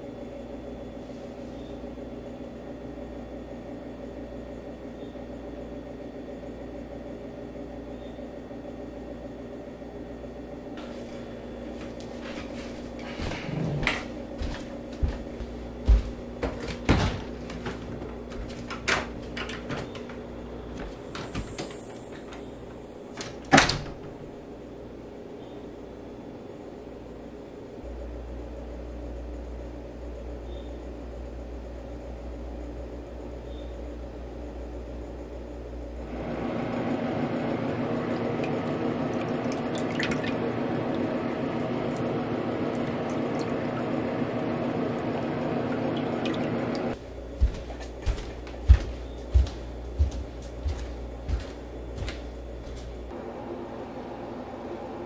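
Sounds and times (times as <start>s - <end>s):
water running into sink: 38.3s - 41.2s, 41.8s - 44.0s, 44.9s - 46.9s.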